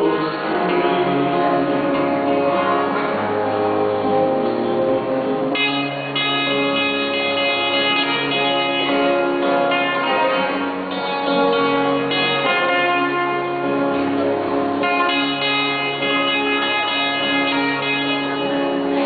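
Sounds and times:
acoustic guitars playing: 0.0s - 19.0s
bass line: 0.0s - 19.0s.

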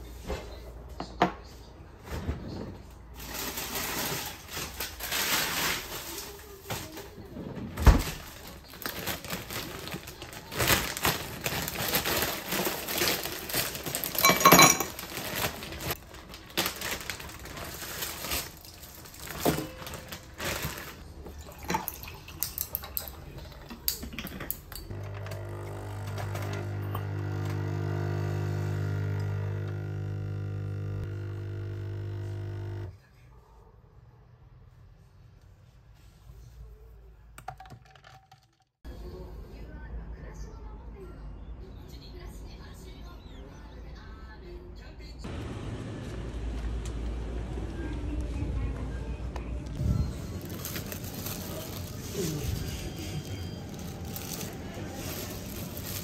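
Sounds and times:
ice cubes clinking into glass: 13.1s - 15.6s, 37.4s - 38.6s
water pouring: 21.0s - 23.3s
coffee machine pump buzzing: 24.9s - 32.9s.

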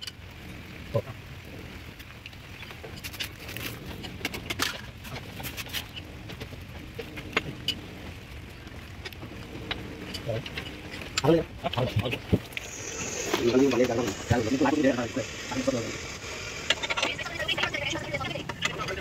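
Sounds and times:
low background hum: 0.0s - 19.0s.

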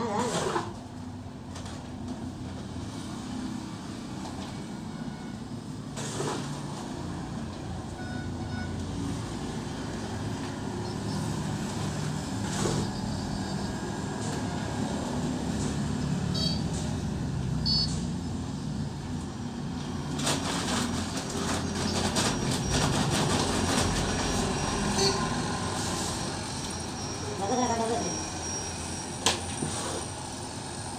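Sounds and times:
bucket scraping concrete floor: 0.0s - 0.8s, 6.0s - 6.9s, 11.7s - 13.2s, 29.5s - 30.2s
road traffic rumble: 0.0s - 30.9s.

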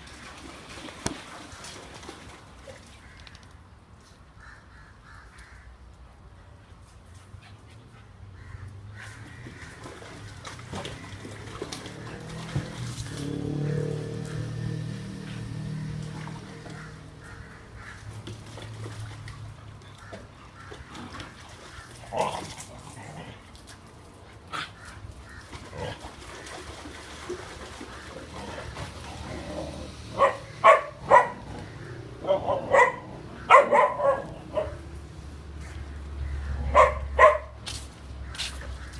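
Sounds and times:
dog barking: 30.2s - 31.5s, 32.2s - 34.8s, 36.7s - 37.6s.

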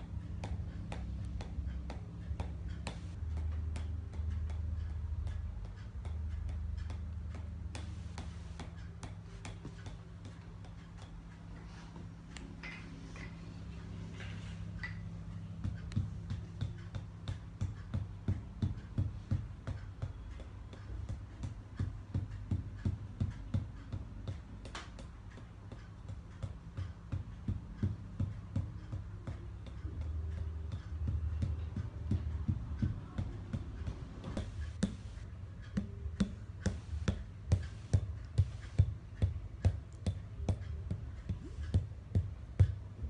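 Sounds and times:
wooden mallet tapping wooden stick: 14.8s - 42.7s.

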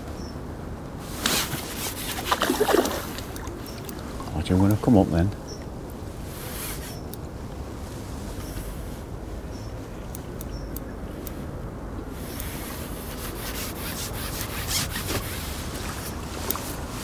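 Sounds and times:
rubbing on microphone: 1.0s - 2.5s, 6.2s - 7.0s, 12.2s - 17.0s
rod and reel clicks: 12.2s - 12.9s, 16.0s - 16.9s.

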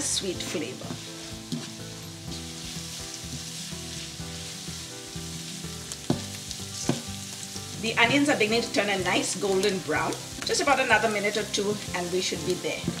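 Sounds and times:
onions sizzling in hot oil: 0.0s - 13.0s
soft background music: 0.0s - 13.0s
wooden spoon stirring: 0.4s - 8.0s.

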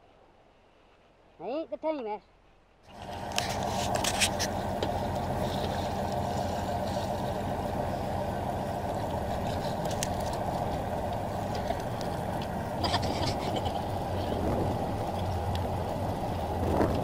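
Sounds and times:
wind: 0.0s - 17.0s
boat engine droning: 2.9s - 17.0s.

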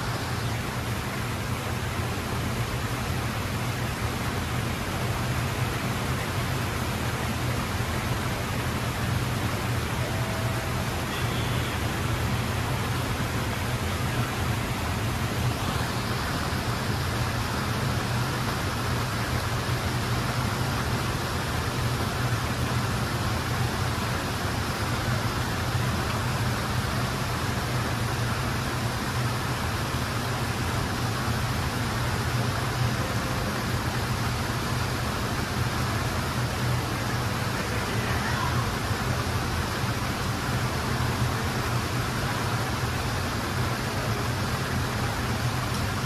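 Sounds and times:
waterfall splashing into pool: 0.0s - 46.0s.

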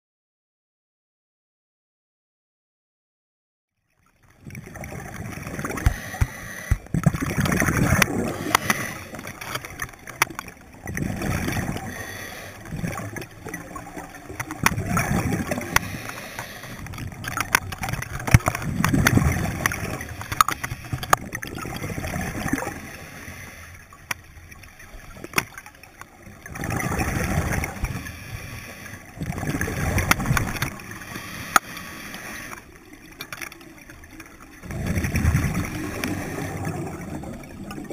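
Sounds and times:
diver exhaling bubbles: 4.4s - 23.6s, 26.4s - 32.6s, 34.6s - 37.9s.

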